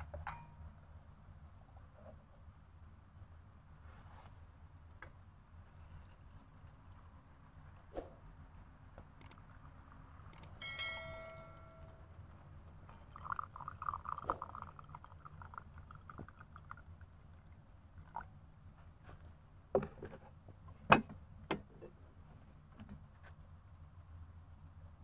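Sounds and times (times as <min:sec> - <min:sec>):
tea pouring into glass: 0:05.6 - 0:07.8, 0:10.4 - 0:18.3
ringing glass clink: 0:10.6 - 0:12.1.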